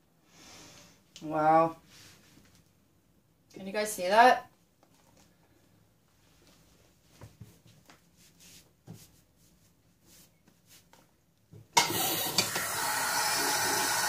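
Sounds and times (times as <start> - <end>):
faint scuffing footsteps: 6.1 - 11.2
tap water running: 11.8 - 14.0.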